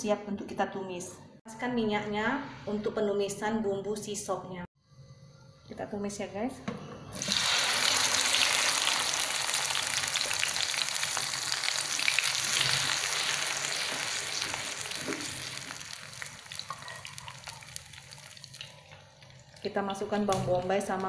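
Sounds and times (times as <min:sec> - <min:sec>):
paste sizzling in hot oil: 0:07.2 - 0:18.9.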